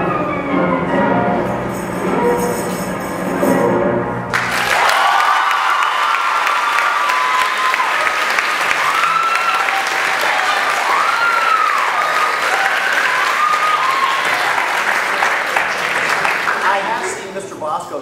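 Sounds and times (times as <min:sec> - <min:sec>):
audience applauding: 0:04.3 - 0:17.5
whoops and cheers: 0:04.5 - 0:15.0.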